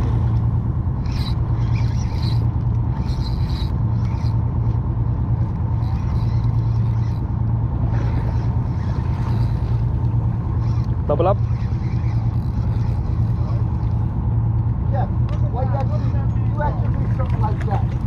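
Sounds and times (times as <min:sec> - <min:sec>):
boat engine droning: 0:00.0 - 0:18.0
fishing reel rasping: 0:00.8 - 0:04.8, 0:05.4 - 0:14.2.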